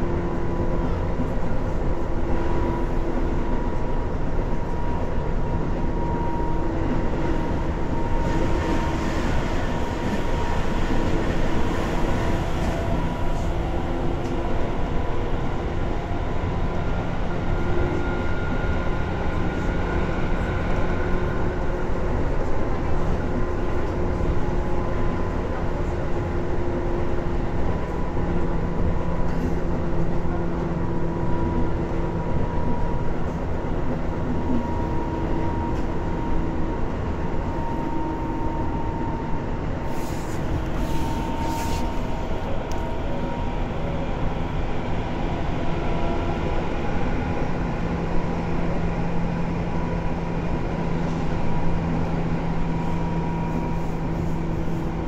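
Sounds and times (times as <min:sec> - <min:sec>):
train wheels rumbling on track: 0:00.0 - 0:55.0
brief hisses: 0:39.9 - 0:42.0.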